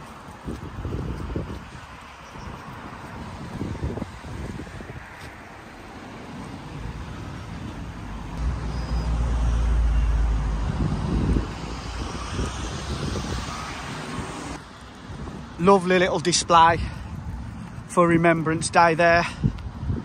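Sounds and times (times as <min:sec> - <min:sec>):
steady traffic noise: 0:00.0 - 0:20.0
vehicle passing close by: 0:02.5 - 0:15.7.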